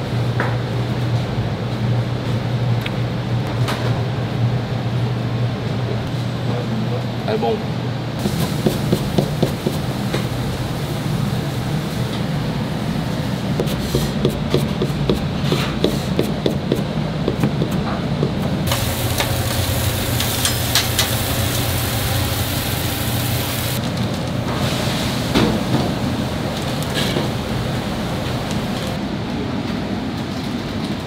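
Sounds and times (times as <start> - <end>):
steady low hum: 16.1 - 23.8
utensils clicking and tapping: 17.4 - 21.5
loud hiss: 18.7 - 23.8.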